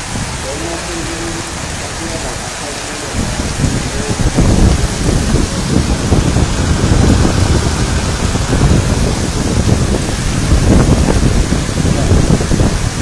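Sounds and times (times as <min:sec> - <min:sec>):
heavy rain pouring: 0:00.0 - 0:13.0
low rumble: 0:03.1 - 0:12.9.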